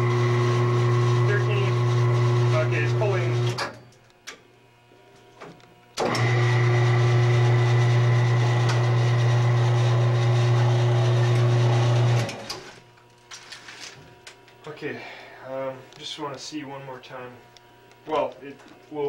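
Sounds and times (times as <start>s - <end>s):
electric motor humming and whining: 0.0s - 3.8s, 5.5s - 13.0s.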